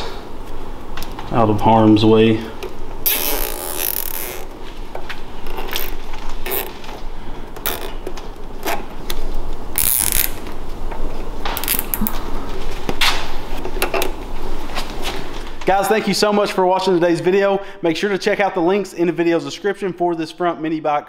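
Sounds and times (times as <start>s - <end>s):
zip ties ratcheting: 3.0s - 4.5s, 5.4s - 6.7s, 7.6s - 8.8s, 9.8s - 10.5s, 11.6s - 12.1s.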